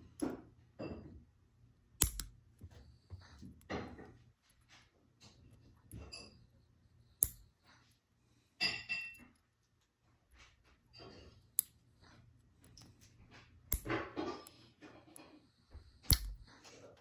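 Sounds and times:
sharp clicks of hard objects: 2.0 - 2.8, 7.2 - 7.6, 12.6 - 15.3, 16.0 - 16.6.

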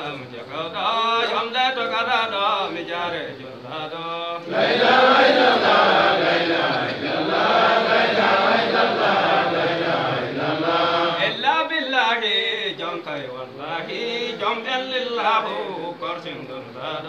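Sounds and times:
men chanting together: 4.4 - 11.6, 13.1 - 17.0.

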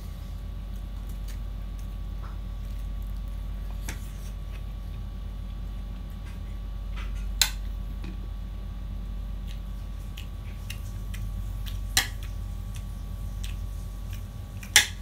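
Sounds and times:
steady low hum: 0.0 - 15.0
fingers mixing food on plate: 9.4 - 15.0.

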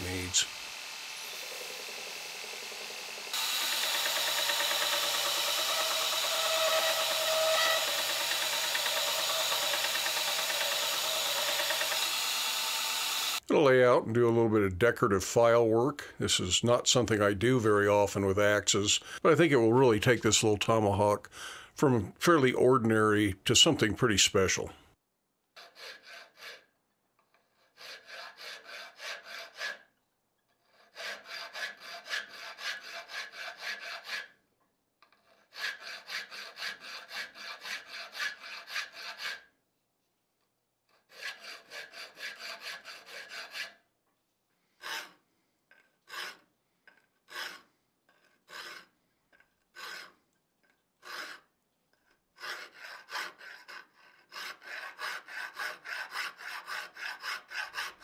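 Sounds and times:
hand file rasping on steel: 0.0 - 13.4, 25.6 - 34.4, 35.0 - 39.6, 40.9 - 43.8, 44.7 - 58.0.

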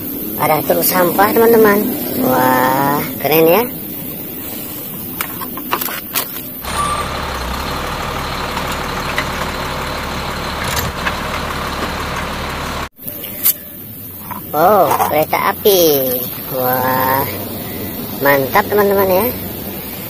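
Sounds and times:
garbage truck lifting arm: 6.6 - 12.9.

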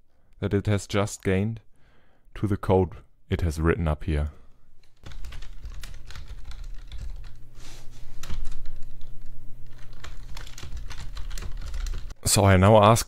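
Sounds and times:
keyboard typing: 4.8 - 7.4, 8.0 - 12.2.

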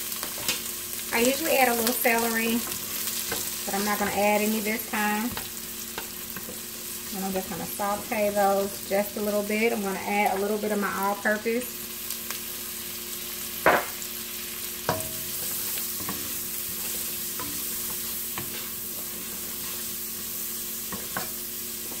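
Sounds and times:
onions sizzling in oil: 0.0 - 22.0
wooden spoon stirring: 14.9 - 20.0.

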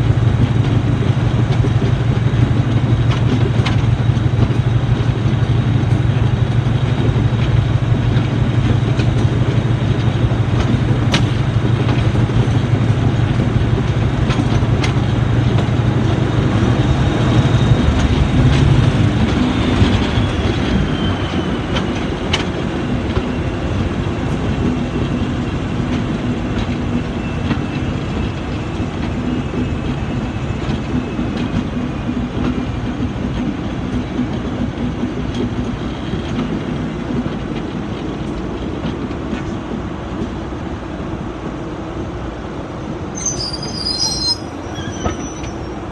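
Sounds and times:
wheels clicking over rail joints: 0.1 - 40.4
high wheel squeal: 19.4 - 22.2, 43.1 - 45.9.

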